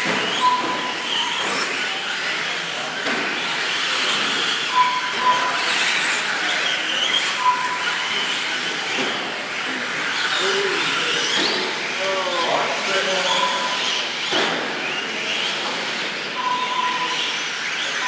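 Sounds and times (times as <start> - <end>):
rc truck motors whining: 0.0 - 18.0
short beeps: 4.7 - 5.6, 7.4 - 8.0, 13.3 - 13.8, 16.4 - 17.3.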